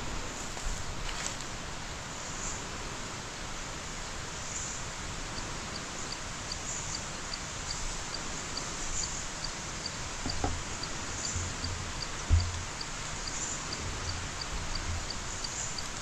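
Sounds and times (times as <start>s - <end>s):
steady hiss: 0.0s - 16.0s
insects ticking: 4.3s - 16.0s
soft thump: 10.2s - 10.7s, 12.3s - 12.6s.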